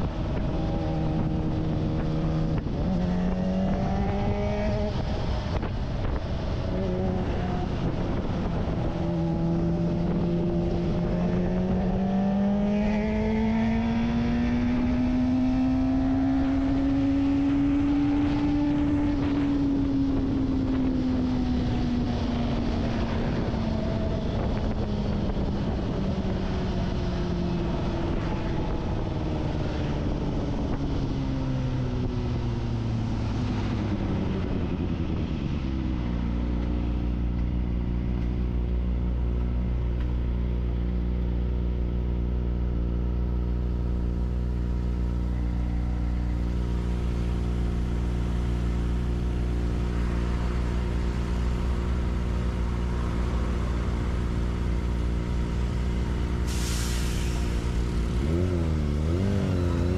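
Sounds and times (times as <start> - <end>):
wind rush: 0.0 - 38.0
motorcycle engine accelerating: 0.0 - 56.6, 57.4 - 59.9.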